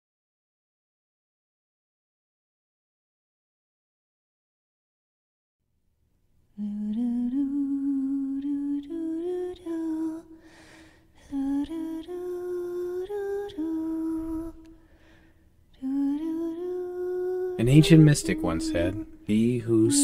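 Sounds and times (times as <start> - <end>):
person humming a melody: 6.6 - 10.4, 11.3 - 14.8, 15.8 - 20.0.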